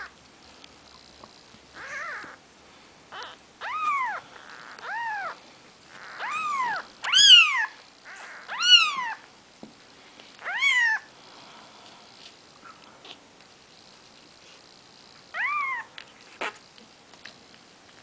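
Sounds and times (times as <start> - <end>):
kittens mewing: 1.8 - 2.4, 3.1 - 9.2.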